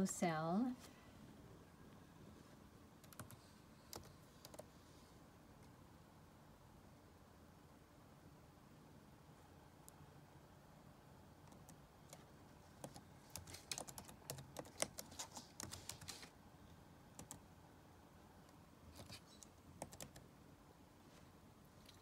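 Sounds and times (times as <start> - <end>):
typing on computer keyboard: 3.0 - 4.7, 11.4 - 16.3, 17.1 - 17.4, 18.9 - 20.3.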